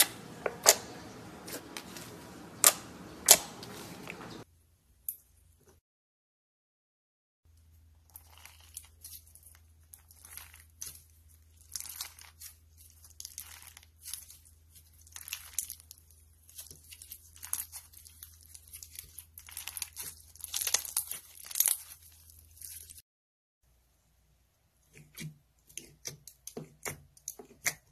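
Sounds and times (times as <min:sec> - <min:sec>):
slime crackling and crunching: 0:08.0 - 0:23.0.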